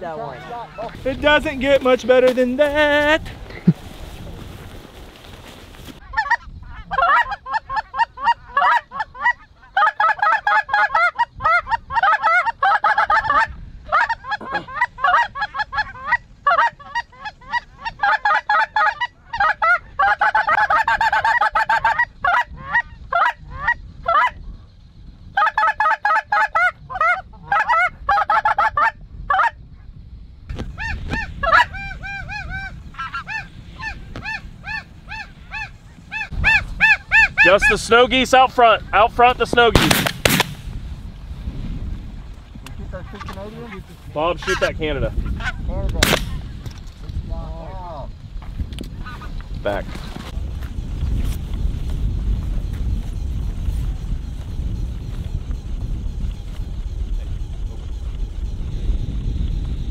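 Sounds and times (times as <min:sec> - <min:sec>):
geese honking: 0:00.0 - 0:03.1, 0:05.8 - 0:24.4, 0:25.4 - 0:29.6, 0:30.7 - 0:39.7, 0:42.9 - 0:46.2.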